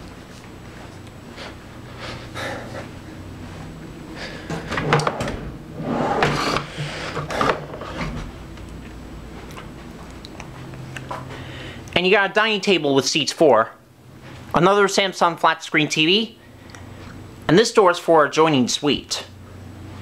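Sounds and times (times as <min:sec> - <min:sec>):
drawer sliding open and shut: 0:04.5 - 0:08.3.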